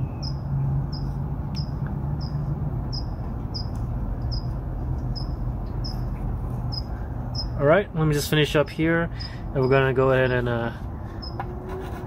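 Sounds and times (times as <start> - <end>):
cricket chirping: 0.2 - 6.1, 6.7 - 7.6.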